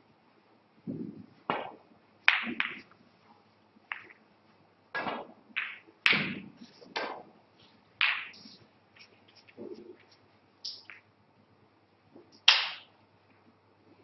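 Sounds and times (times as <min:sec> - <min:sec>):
balls knocking off cushions: 0:00.9 - 0:02.9, 0:05.0 - 0:07.3
snooker balls clicking: 0:01.4 - 0:03.0, 0:03.8 - 0:04.3, 0:04.9 - 0:11.1, 0:12.1 - 0:13.4.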